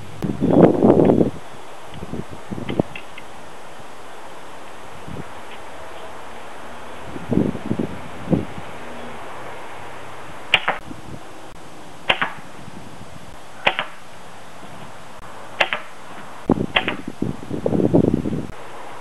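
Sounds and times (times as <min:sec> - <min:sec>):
arrows hitting foam target: 0:13.7 - 0:14.0, 0:15.6 - 0:15.9.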